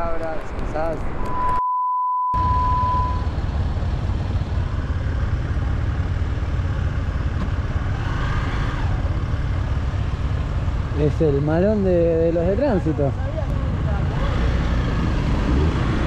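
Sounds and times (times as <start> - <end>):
city street traffic: 0.0 - 1.6, 2.4 - 16.0
steady electronic beep: 1.2 - 3.3
motorcycle engine idling: 3.2 - 8.0.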